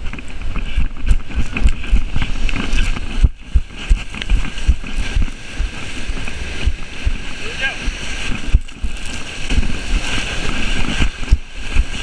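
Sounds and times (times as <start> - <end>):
camera thumps: 0.0 - 7.2
running footsteps on sand: 0.0 - 12.0
waves breaking: 0.0 - 12.0.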